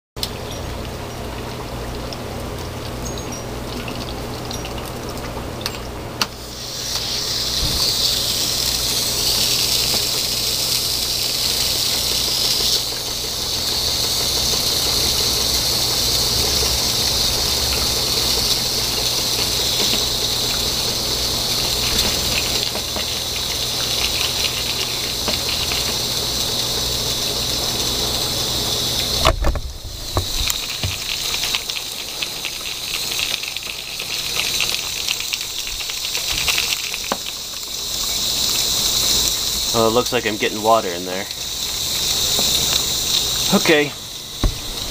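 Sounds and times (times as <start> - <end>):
gas hissing: 6.2 - 44.9
knock: 44.4 - 44.6.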